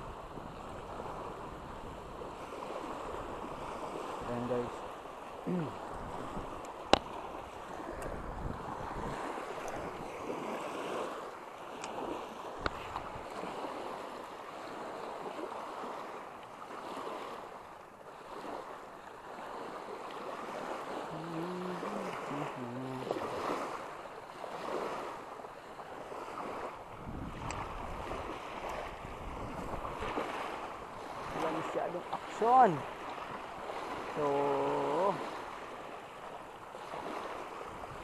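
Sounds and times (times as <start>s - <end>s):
wind buffeting microphone: 0.0s - 5.0s, 5.6s - 11.2s, 26.0s - 31.7s, 36.7s - 38.0s
small waves lapping on shore: 0.0s - 38.0s.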